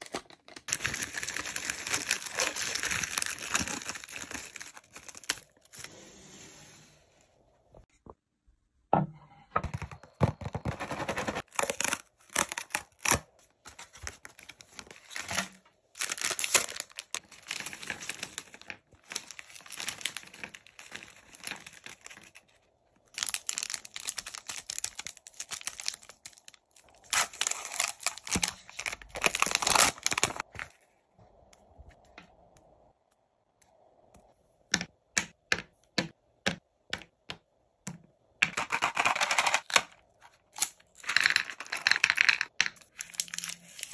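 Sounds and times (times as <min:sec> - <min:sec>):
wrappers crinkling and tearing: 0:00.0 - 0:05.8, 0:10.9 - 0:30.7, 0:38.8 - 0:43.9.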